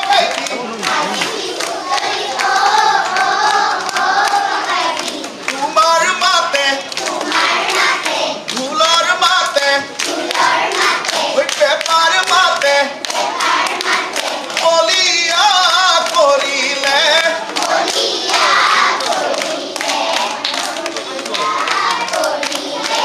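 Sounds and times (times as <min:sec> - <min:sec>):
person singing folk song: 0:05.3 - 0:07.6, 0:08.3 - 0:17.8.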